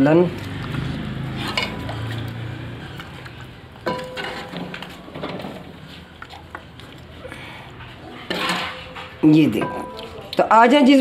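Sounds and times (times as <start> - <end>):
metal spoon scraping cooking pot: 1.0 - 2.3, 3.8 - 5.8, 8.1 - 10.4.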